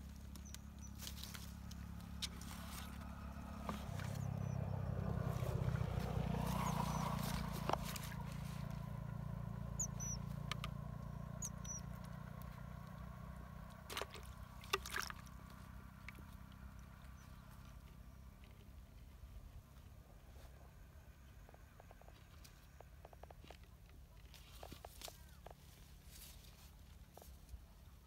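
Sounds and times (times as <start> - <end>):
distant motor droning: 0.0 - 18.6.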